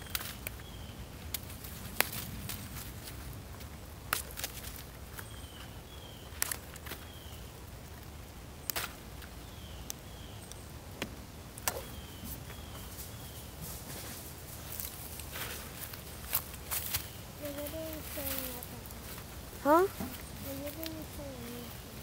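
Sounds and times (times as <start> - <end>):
bird chirping: 0.0 - 1.2, 5.1 - 7.6, 8.6 - 10.8, 11.6 - 13.7, 15.9 - 22.0
leaves and twigs crackling: 0.0 - 22.0.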